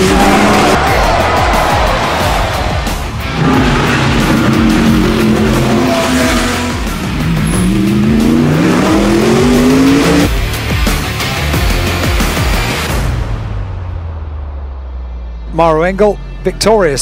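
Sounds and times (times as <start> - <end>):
music: 0.0 - 17.0
race car engine accelerating: 2.0 - 10.3.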